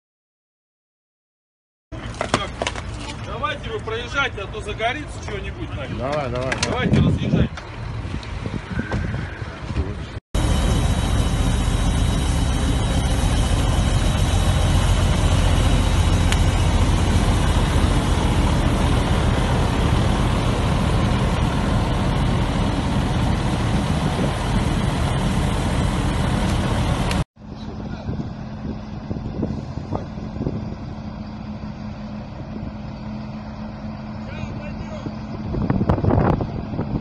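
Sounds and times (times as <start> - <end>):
loud steady rumbling: 2.0 - 37.0
faint high whine: 10.4 - 27.2.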